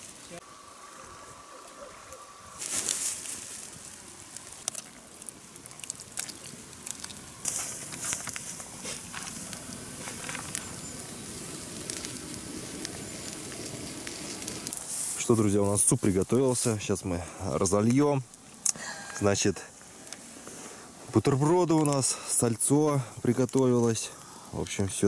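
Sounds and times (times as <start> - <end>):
campfire crackling: 0.0 - 25.0
fire hissing: 0.0 - 25.0.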